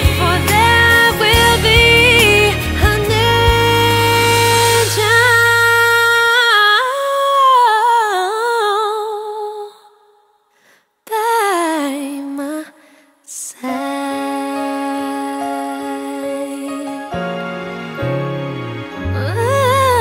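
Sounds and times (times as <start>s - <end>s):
soft music with held notes: 13.8s - 20.0s.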